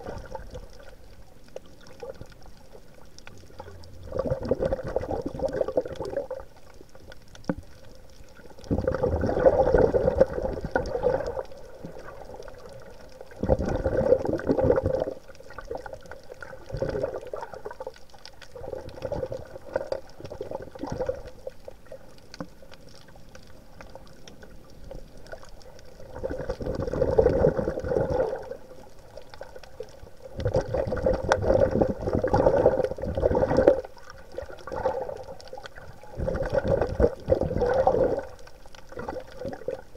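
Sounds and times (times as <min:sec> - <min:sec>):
underwater bubbling and gurgling: 0:00.0 - 0:39.9.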